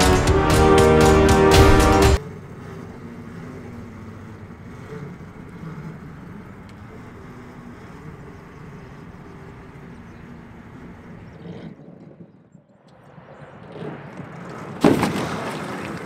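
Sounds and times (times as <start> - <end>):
electric drive running with hum: 2.2 - 11.4.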